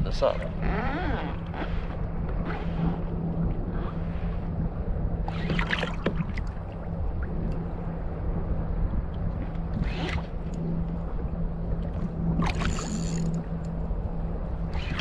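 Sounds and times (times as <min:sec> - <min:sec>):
wind on microphone: 0:00.0 - 0:15.0
water lapping against kayak hull: 0:00.3 - 0:07.8, 0:09.1 - 0:13.6
scratchy rattle of reel clicks: 0:12.6 - 0:13.4.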